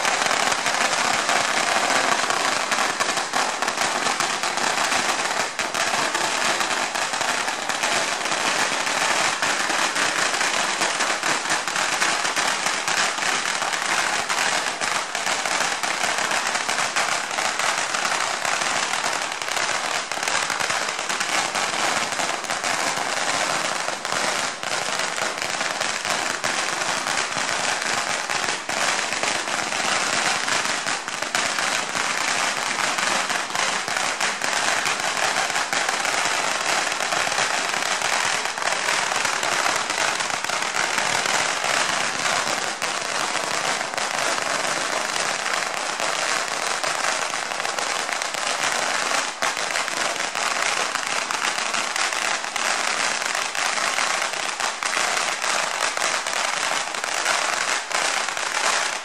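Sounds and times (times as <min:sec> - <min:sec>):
firecrackers crackling: 0:00.0 - 0:59.0.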